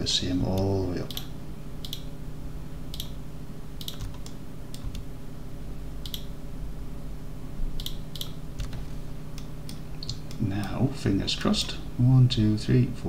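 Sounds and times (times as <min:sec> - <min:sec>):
steady low hum: 0:00.0 - 0:13.0
mouse and keyboard clicks: 0:03.8 - 0:05.0.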